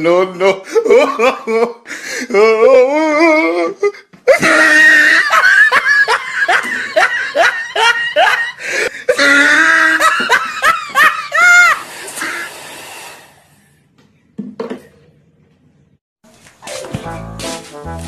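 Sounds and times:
person laughing heartily: 0.5 - 12.4.

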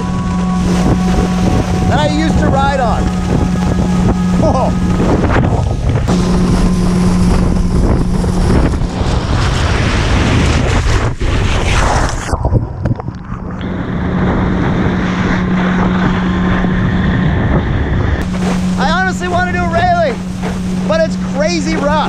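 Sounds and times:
boat engine drone: 0.0 - 22.0
wind buffeting microphone: 0.0 - 22.0
water spray rushing: 18.2 - 22.0.

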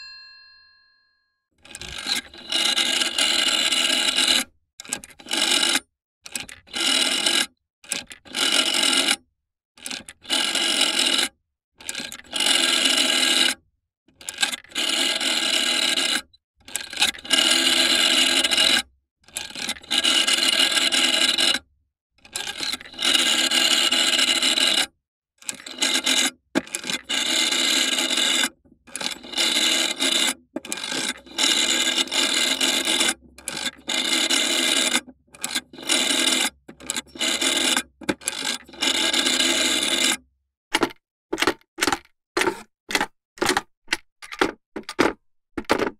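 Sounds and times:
telephone bell ringing: 0.0 - 1.2.

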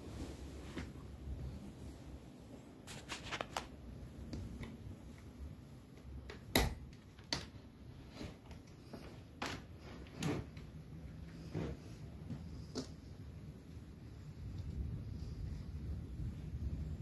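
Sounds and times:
faint low rumble: 10.0 - 17.0.

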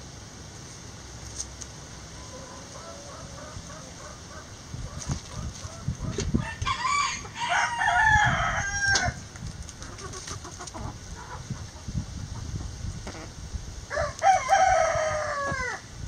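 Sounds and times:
rooster crowing: 2.2 - 4.2, 5.7 - 9.2, 13.9 - 15.9
hens clucking: 2.2 - 7.4, 9.7 - 13.4.

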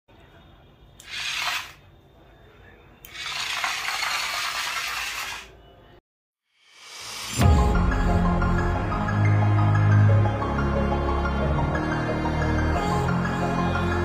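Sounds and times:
plastic wheels rattling over tile: 1.0 - 1.8, 3.1 - 5.5
toy truck motor whirring: 1.0 - 1.8, 3.0 - 5.5.

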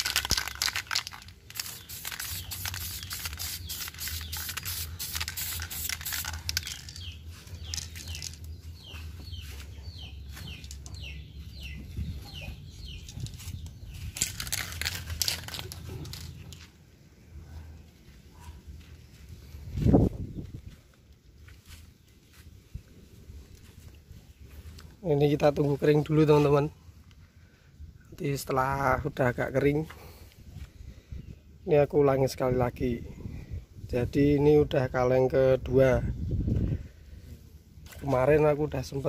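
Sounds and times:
spray paint can hissing: 0.0 - 7.1
birds chirping: 1.5 - 32.3.

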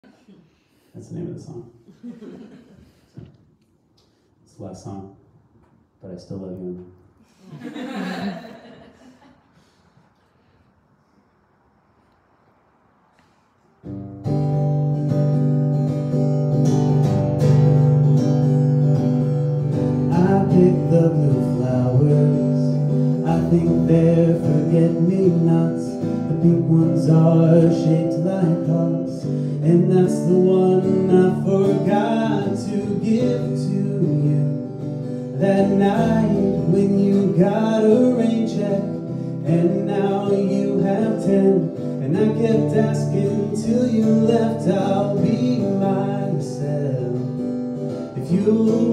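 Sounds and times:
acoustic guitar strumming: 13.8 - 48.9.

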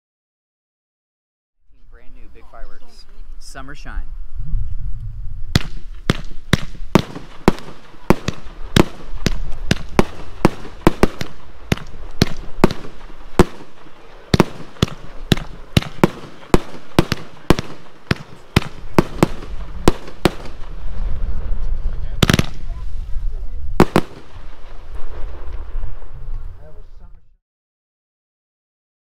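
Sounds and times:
fireworks shots bursting: 5.4 - 26.8.

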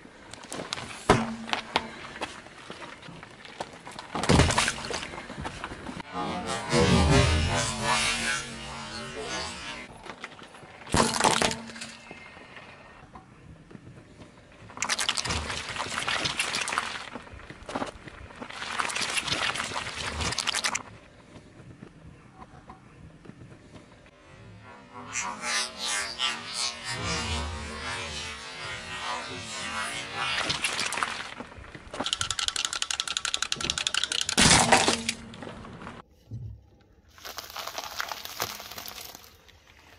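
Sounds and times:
tyre crushing plastic toy: 37.1 - 39.5
tyre squishing jelly: 37.1 - 39.7.

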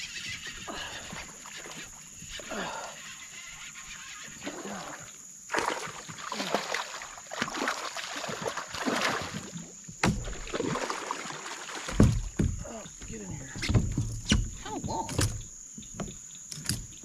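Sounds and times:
fish splashing at water surface: 5.5 - 12.5.

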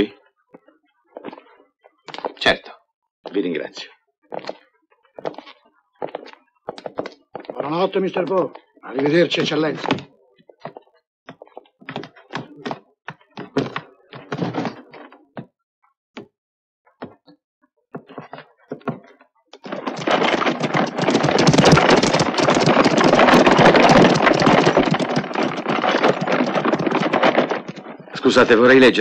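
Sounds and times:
knocks and thuds: 9.4 - 10.1, 18.0 - 28.6
horse-drawn carriage rattling: 19.6 - 28.9.

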